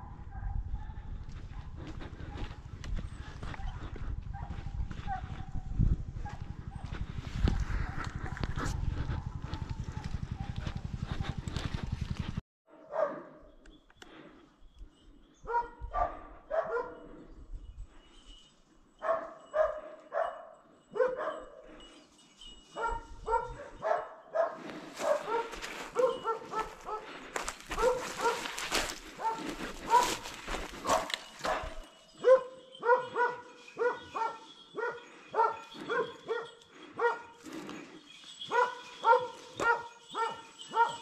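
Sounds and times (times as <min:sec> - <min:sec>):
dogs barking and baying: 0:00.0 - 0:12.0, 0:12.7 - 0:14.2, 0:15.3 - 0:17.4, 0:19.0 - 0:41.0
rustling brush: 0:24.6 - 0:32.2.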